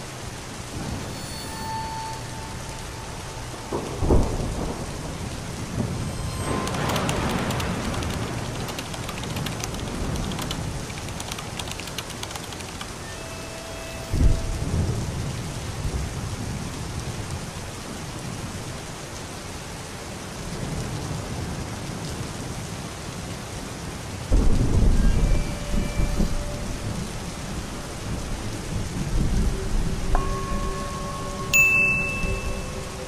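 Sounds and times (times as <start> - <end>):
steady rain: 0.0 - 33.0
thunder rolling: 0.7 - 1.5, 2.2 - 12.8, 24.3 - 31.5.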